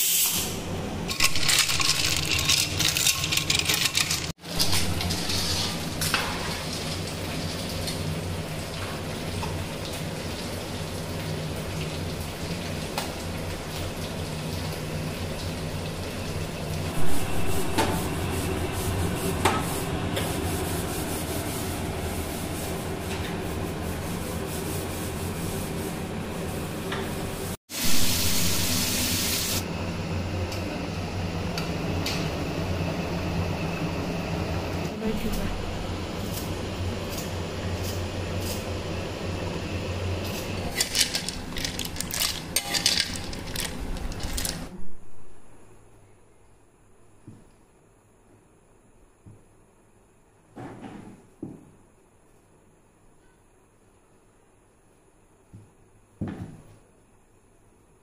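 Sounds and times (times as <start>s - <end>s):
loud hiss: 0.0s - 0.6s, 27.7s - 29.6s.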